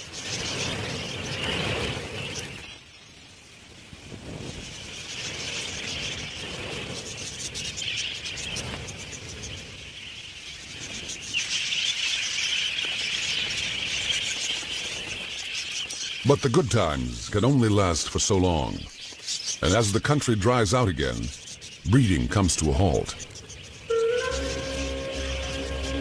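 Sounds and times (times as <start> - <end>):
budgerigars chattering: 10.7 - 26.0.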